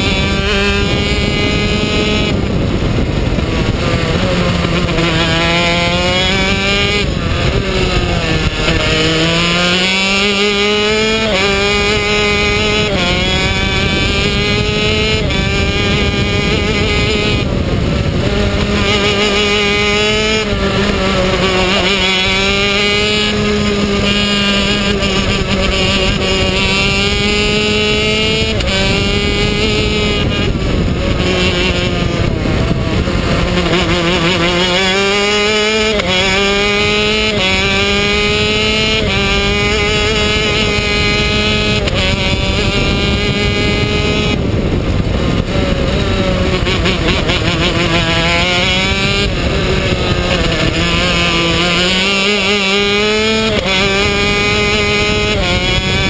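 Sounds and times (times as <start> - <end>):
kart engine revving: 0.0 - 56.0.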